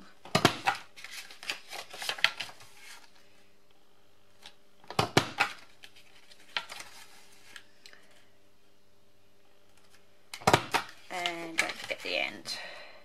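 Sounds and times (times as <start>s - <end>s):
paper rustling: 0.4s - 3.2s, 5.4s - 7.7s, 10.7s - 12.2s.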